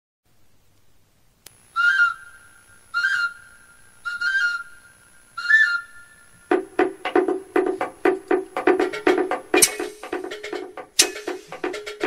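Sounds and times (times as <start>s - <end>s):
whistle blowing short high notes: 1.8s - 6.2s, 9.6s - 10.0s, 11.0s - 11.4s.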